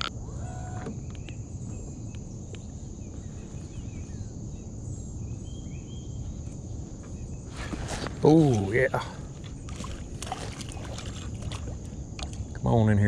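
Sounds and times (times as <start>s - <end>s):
faint bird chirps: 0.0s - 11.6s
low steady rumble: 0.0s - 13.0s.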